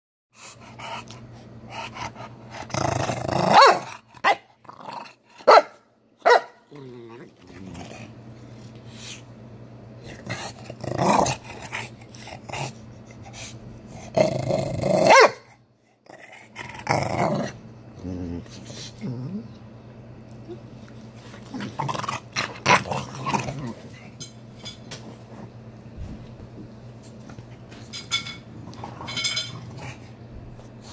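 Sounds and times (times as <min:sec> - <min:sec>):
dog growling and snarling: 0:00.6 - 0:05.5, 0:06.6 - 0:08.3, 0:10.0 - 0:12.8, 0:13.9 - 0:15.3, 0:16.0 - 0:19.6, 0:21.2 - 0:24.2, 0:28.5 - 0:30.3
dog barking: 0:03.5 - 0:04.4, 0:05.4 - 0:06.6, 0:15.1 - 0:15.5.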